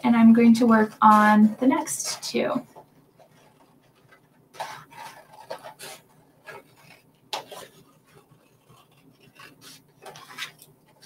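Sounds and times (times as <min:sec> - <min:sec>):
scissors cutting cardstock: 0:03.3 - 0:11.0.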